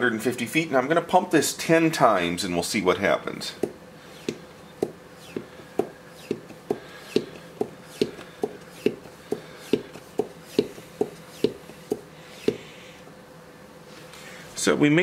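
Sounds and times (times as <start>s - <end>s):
hand vacuum pump clicking and hissing: 3.6s - 12.7s.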